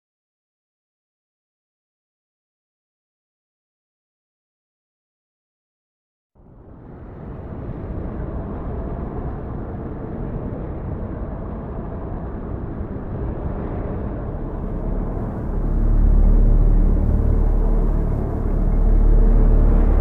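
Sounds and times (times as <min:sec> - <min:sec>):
rushing noise: 0:06.7 - 0:20.0
deep rumble with low held tones: 0:07.4 - 0:20.0.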